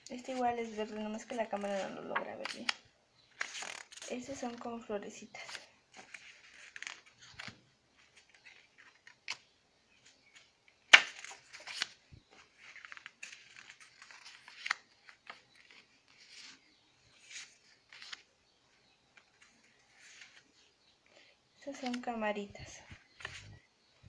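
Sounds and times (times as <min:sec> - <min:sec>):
paper rustling and sliding: 0:05.4 - 0:09.3, 0:10.0 - 0:18.3, 0:19.2 - 0:20.6, 0:22.9 - 0:23.6.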